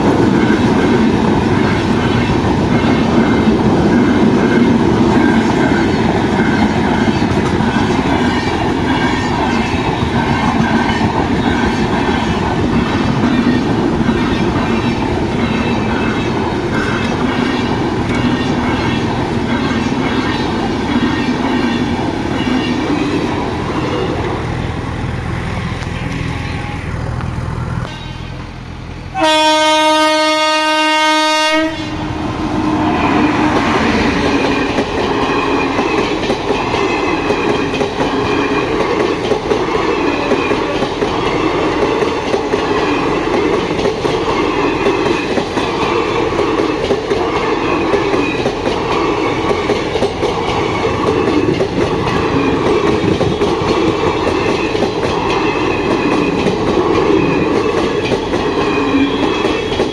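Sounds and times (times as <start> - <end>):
train wheels clicking on rails: 0.0 - 24.8, 32.3 - 59.9
train horn blast: 25.8 - 27.0, 29.1 - 32.1.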